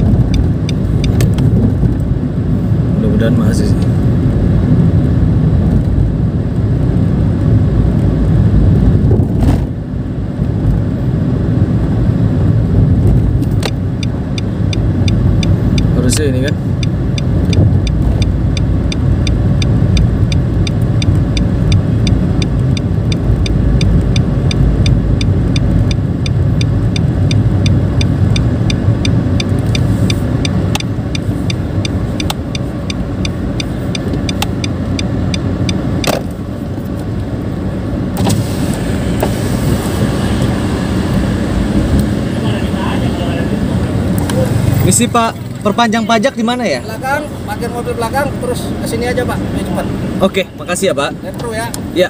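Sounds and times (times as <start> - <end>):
turn signal ticking: 0.0 - 2.4, 11.6 - 37.7, 43.6 - 52.0
car engine and road noise: 0.0 - 52.0.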